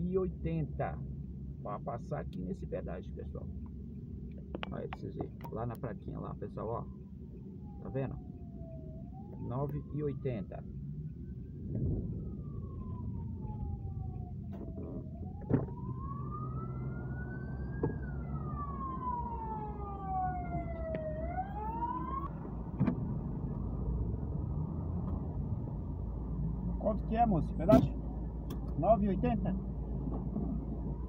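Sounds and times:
car engine hum: 0.0s - 31.0s
siren wailing: 6.3s - 28.0s.

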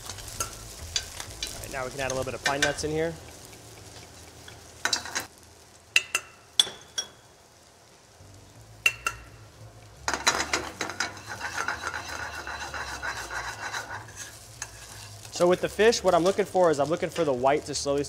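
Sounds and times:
light sizzle: 0.0s - 18.0s
metal spoon clicking on skillet: 6.0s - 7.2s, 8.8s - 9.3s
spoon scraping pan: 10.1s - 15.4s.

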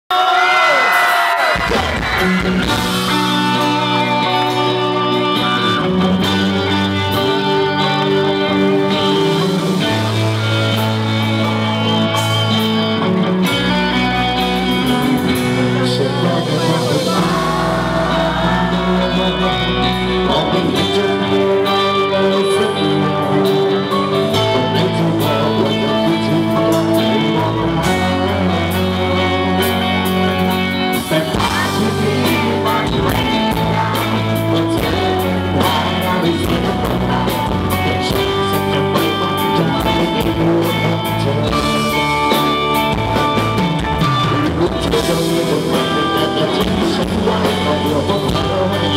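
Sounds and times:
drums: 0.1s - 48.9s
electric guitar: 0.2s - 48.9s
bass notes: 1.6s - 48.9s.

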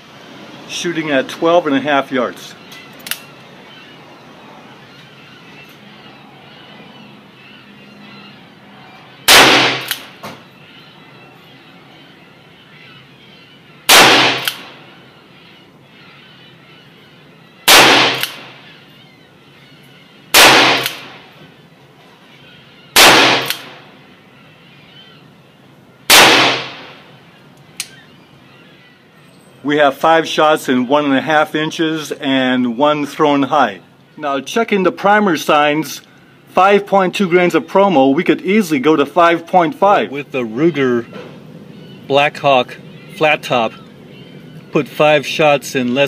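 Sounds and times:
revolver gunshots: 9.2s - 10.2s, 13.9s - 14.9s, 17.6s - 18.7s, 20.3s - 21.4s, 23.0s - 23.9s, 26.1s - 27.1s
gunshot echo: 9.3s - 10.2s, 13.9s - 14.8s, 17.7s - 18.6s, 20.4s - 21.3s, 23.0s - 23.8s, 26.1s - 27.0s.

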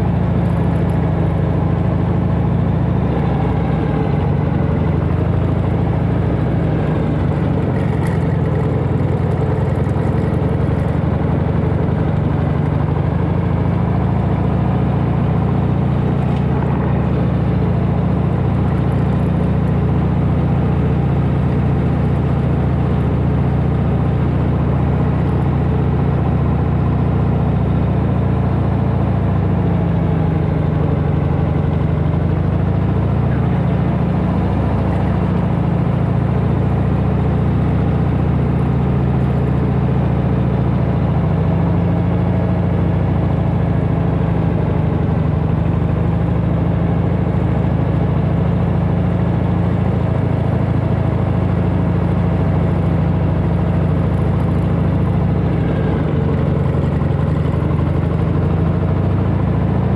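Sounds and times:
motorcycle engine running: 0.0s - 59.9s.

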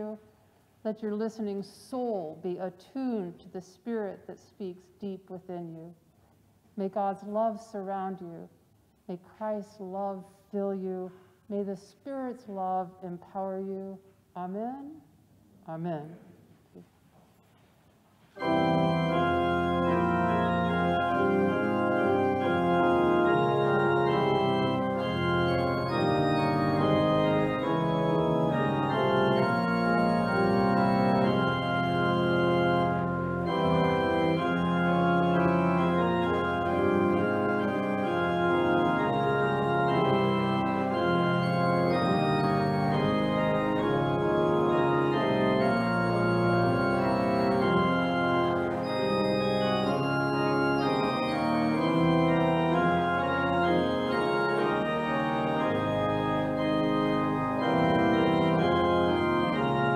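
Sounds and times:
organ playing sustained chords: 18.4s - 59.9s.

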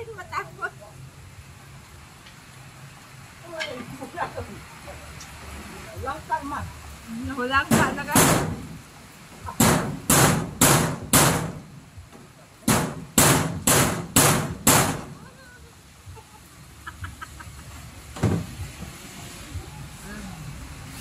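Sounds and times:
sharp knocks: 7.7s - 8.7s, 9.6s - 11.7s, 12.7s - 15.2s.

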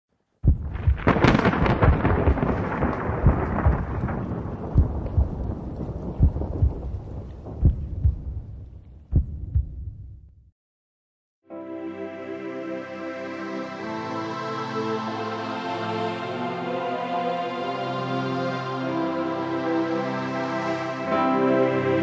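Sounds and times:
thunder rumbling: 0.4s - 10.4s
low thuds: 0.4s - 10.5s
rain hissing: 0.5s - 8.9s.

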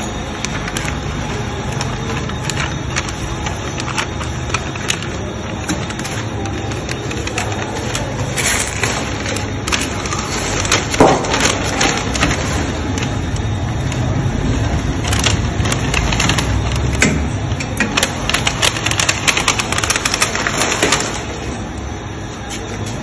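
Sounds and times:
packing film rustling: 0.0s - 21.6s
low machine hum: 0.0s - 23.0s
loud clatter: 1.8s - 13.2s.

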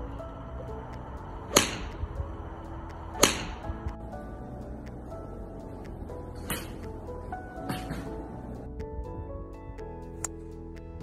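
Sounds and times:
golf club striking ball: 1.4s - 8.7s.

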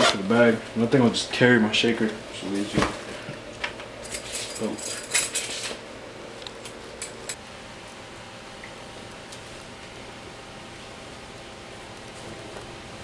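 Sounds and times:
rustling and clinking of items: 4.0s - 5.8s.

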